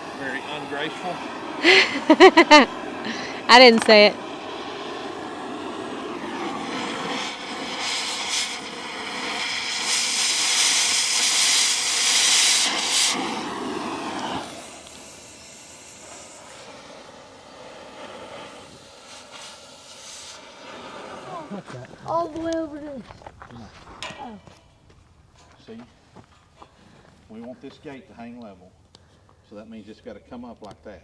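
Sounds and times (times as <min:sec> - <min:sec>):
welding arc crackling and hissing: 0:00.0 - 0:23.9
steady hum: 0:00.0 - 0:26.6.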